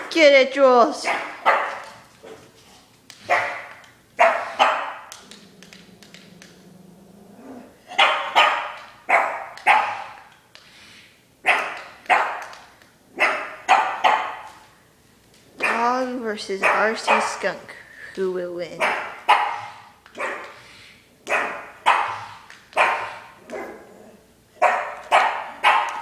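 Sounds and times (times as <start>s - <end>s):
dog barking: 1.0s - 2.4s, 3.3s - 5.1s, 7.9s - 10.3s, 11.4s - 12.6s, 13.2s - 14.6s, 15.6s - 15.9s, 16.6s - 17.5s, 18.8s - 20.6s, 21.3s - 23.9s, 24.6s - 26.0s.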